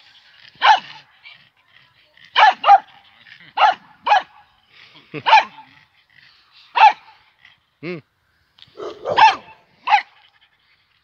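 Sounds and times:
dog barking: 0:02.4 - 0:02.9, 0:03.6 - 0:04.3, 0:05.2 - 0:05.6, 0:06.8 - 0:07.0, 0:08.8 - 0:10.1.

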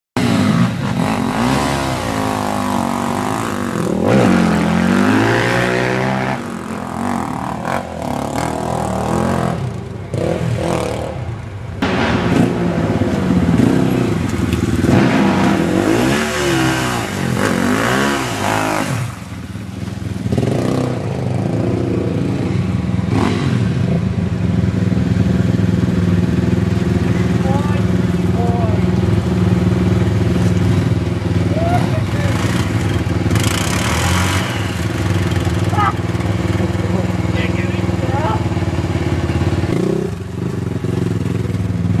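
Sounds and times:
quad engines revving: 0:00.2 - 0:42.0.

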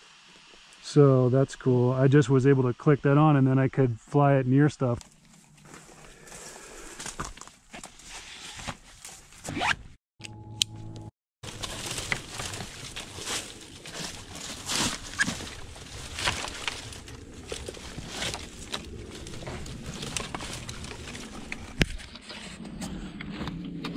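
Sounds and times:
branches rustling and crackling: 0:05.0 - 0:09.7, 0:11.4 - 0:22.4.

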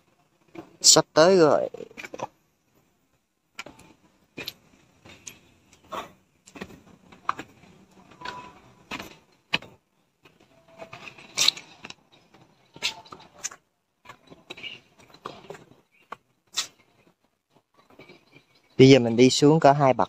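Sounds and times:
footsteps on stone steps: 0:03.6 - 0:18.5.

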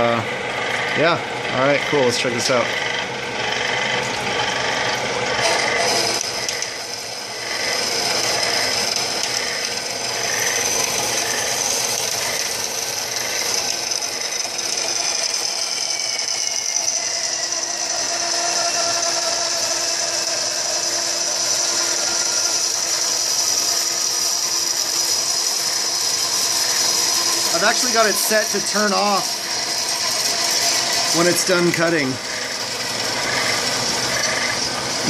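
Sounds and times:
bandsaw cutting metal tubing: 0:00.0 - 0:35.0.

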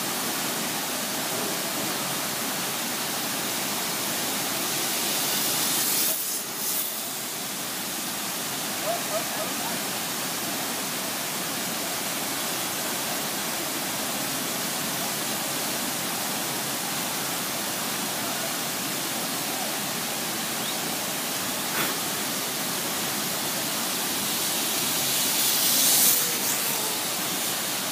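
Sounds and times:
high hiss: 0:00.0 - 0:27.9
waterfall rushing: 0:00.0 - 0:27.9.

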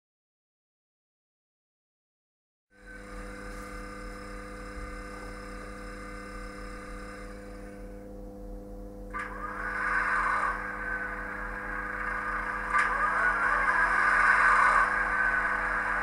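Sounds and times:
model railcar engine sound: 0:02.8 - 0:07.9, 0:09.1 - 0:16.0
model train humming tones: 0:02.8 - 0:16.0.

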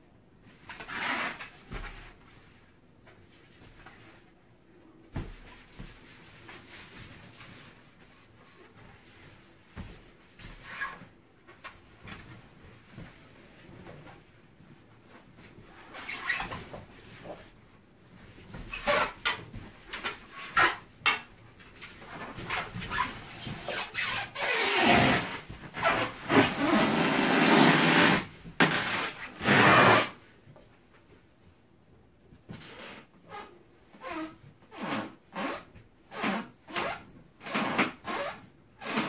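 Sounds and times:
balloon rubbing and squeaking: 0:00.8 - 0:01.6, 0:22.1 - 0:30.2, 0:32.8 - 0:39.0.

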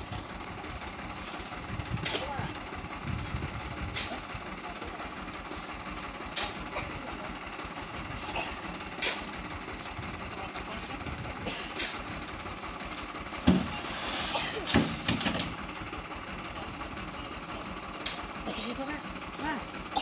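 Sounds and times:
truck engine idling: 0:00.0 - 0:20.0
hoe scraping sand and soil: 0:01.0 - 0:02.4, 0:05.5 - 0:06.7, 0:13.5 - 0:15.0.

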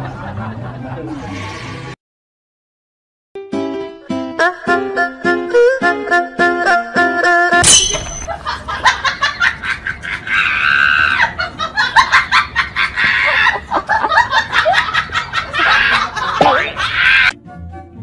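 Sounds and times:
people laughing and shrieking: 0:08.8 - 0:17.4.

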